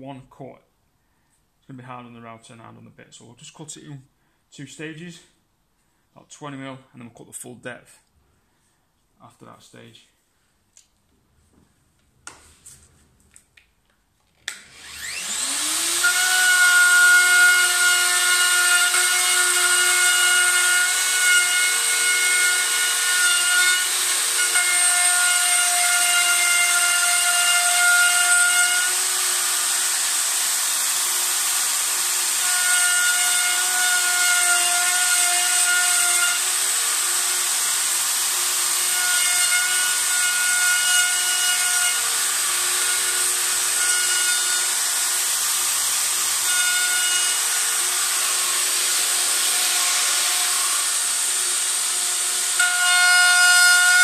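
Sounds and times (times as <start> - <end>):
router cutting worktop: 14.3 - 54.0.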